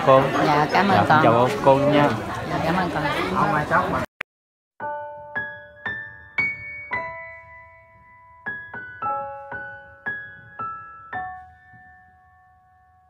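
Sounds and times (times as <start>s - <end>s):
slow soft piano music: 4.8s - 13.0s.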